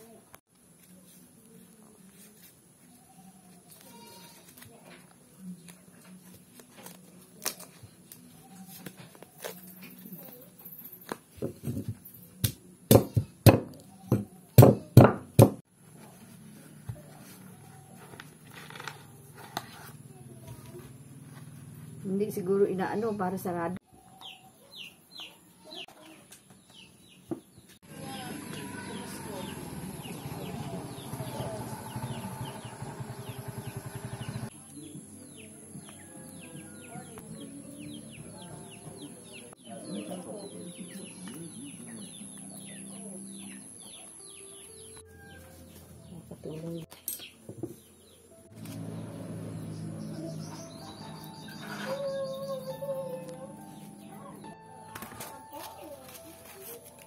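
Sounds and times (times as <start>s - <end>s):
birds chirping: 21.8s - 48.3s, 48.9s - 54.6s
motorised tricycle engine pulsing: 27.9s - 34.5s, 48.4s - 57.0s.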